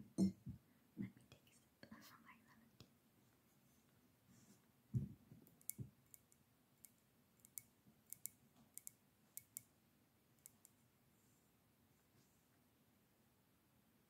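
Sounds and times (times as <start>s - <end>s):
soft low thump: 4.9s - 5.2s.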